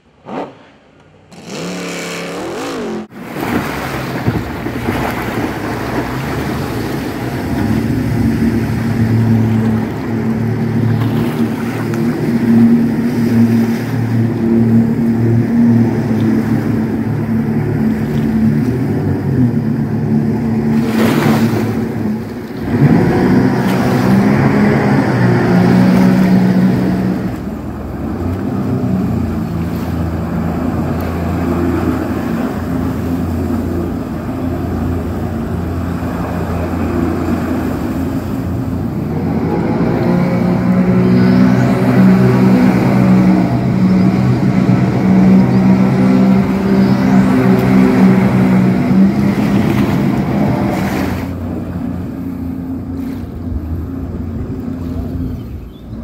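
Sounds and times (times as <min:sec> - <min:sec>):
jet boat engine revving: 0:00.0 - 0:56.0
water rushing: 0:00.0 - 0:56.0.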